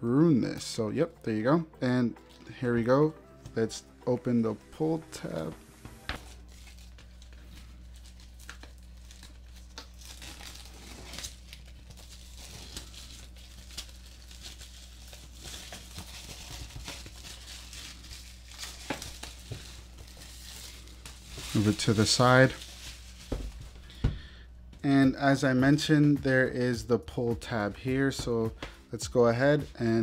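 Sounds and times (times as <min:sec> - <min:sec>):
plastic shrink wrap crinkling: 0:06.1 - 0:24.0.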